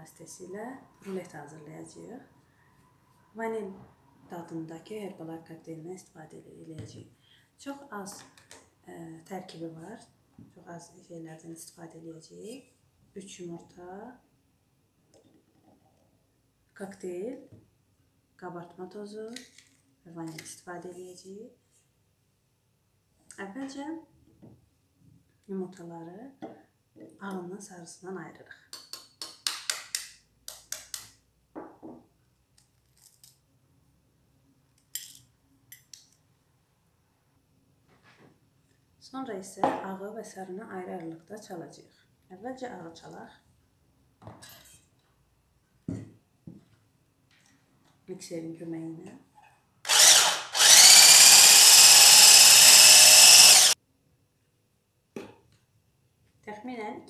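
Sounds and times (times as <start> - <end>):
stick blender whisking: 49.9 - 53.8.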